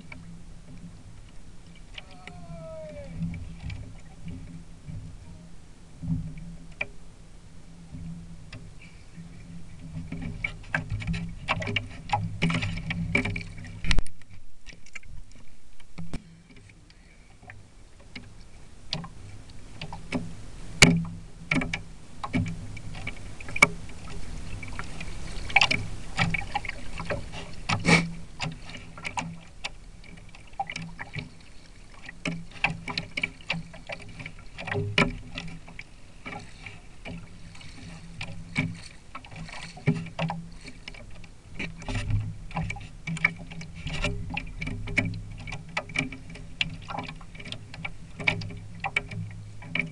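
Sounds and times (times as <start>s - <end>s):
water slapping against plastic hulls: 8.0s - 16.7s, 19.8s - 49.9s.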